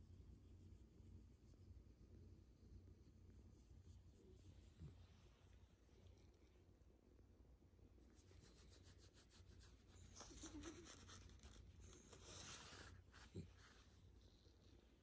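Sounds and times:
hand scratching dog fur: 0:08.0 - 0:14.2.

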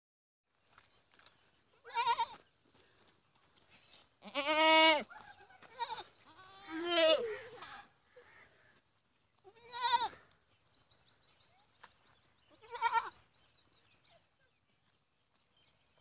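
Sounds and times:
goats bleating: 0:01.8 - 0:02.4, 0:04.2 - 0:08.5, 0:09.5 - 0:10.2, 0:12.5 - 0:13.2.

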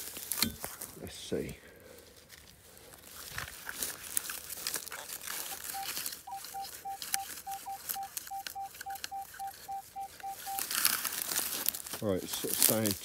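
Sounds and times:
stubble and soil rustling: 0:00.0 - 0:13.0
metal detector short beeps: 0:05.5 - 0:10.7.

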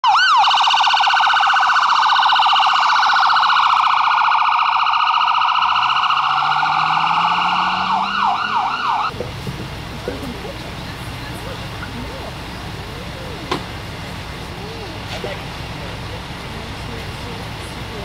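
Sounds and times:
ambulance siren: 0:00.0 - 0:09.2
ambulance engine: 0:00.0 - 0:18.0.

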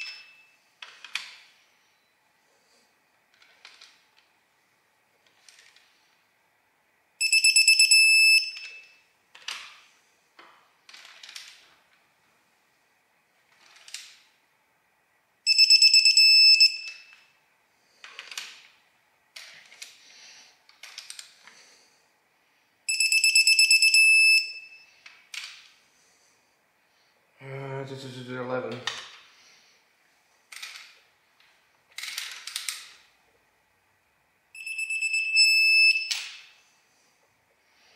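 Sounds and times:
torque wrench high beeps: 0:00.0 - 0:00.5, 0:07.2 - 0:09.0, 0:15.5 - 0:17.1, 0:22.9 - 0:24.9, 0:34.6 - 0:36.2.

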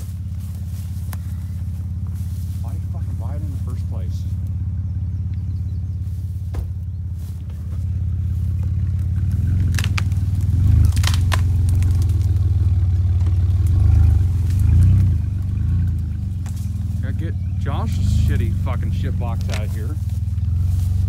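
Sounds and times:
car engine under load: 0:00.0 - 0:21.0
sharp cracks: 0:08.7 - 0:16.9.

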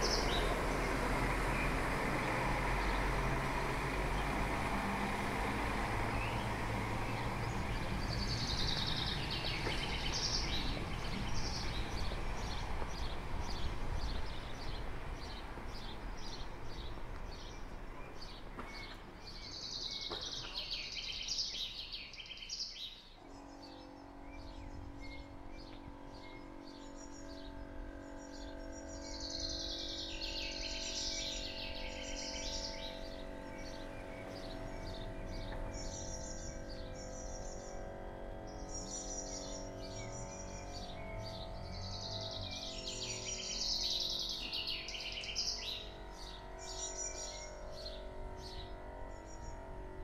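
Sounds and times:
small songbirds chirping: 0:00.0 - 0:49.7
hum of held tones: 0:23.2 - 0:50.0.

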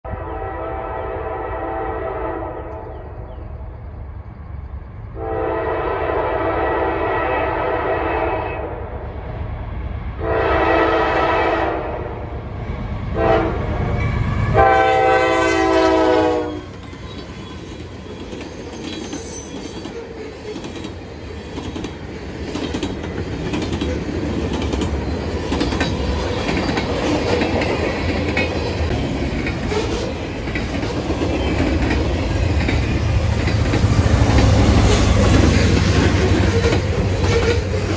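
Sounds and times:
train horn blasts: 0:00.1 - 0:02.9, 0:05.1 - 0:08.9, 0:10.2 - 0:12.2, 0:13.1 - 0:17.2
train cars rumbling and clacking: 0:08.8 - 0:37.9.

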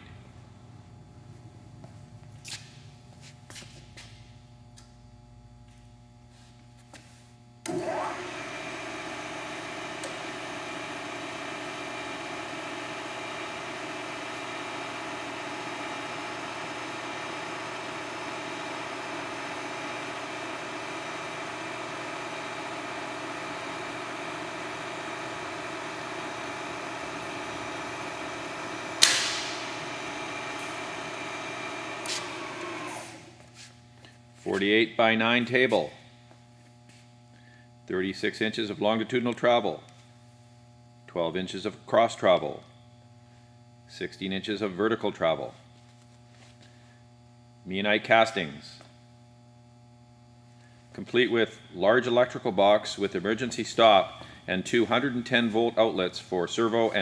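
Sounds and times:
milling machine motor whine: 0:07.6 - 0:34.6.

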